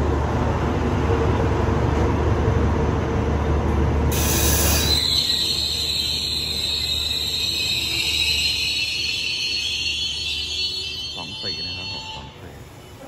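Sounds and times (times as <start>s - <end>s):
train wheels rumbling on rail: 0.0s - 13.0s
high steady squeal: 4.2s - 12.6s.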